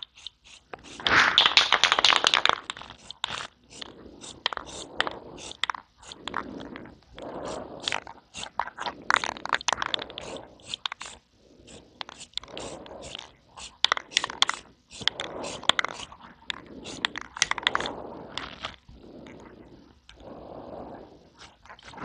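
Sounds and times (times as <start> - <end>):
spray can rattling when shaken: 0.0 - 6.4, 7.4 - 18.8
aerosol spray hissing: 0.0 - 18.4.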